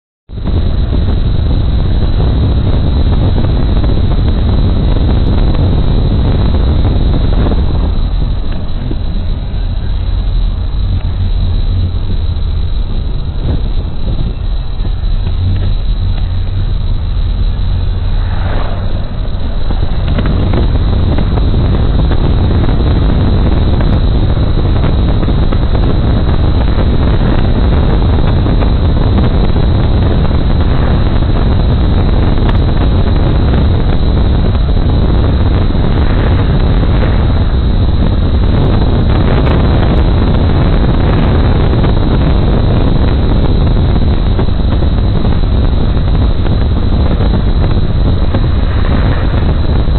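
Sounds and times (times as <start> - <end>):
car road and wind noise: 0.3 - 49.9
wind buffeting microphone: 0.3 - 49.9.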